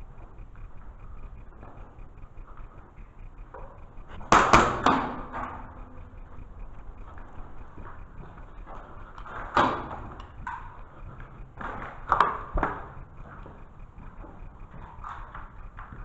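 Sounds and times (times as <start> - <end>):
airsoft pistol shots echoing: 4.3 - 5.4.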